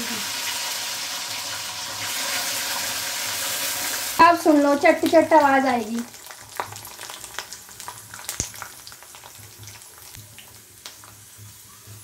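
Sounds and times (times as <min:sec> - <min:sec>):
beans sizzling in hot oil: 0:00.0 - 0:12.0
sharp pops and crackles: 0:05.9 - 0:11.2.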